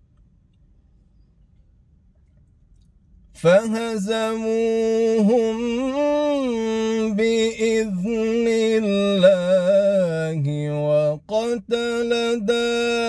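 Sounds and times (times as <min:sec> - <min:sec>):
man reciting melodically: 0:03.4 - 0:13.0.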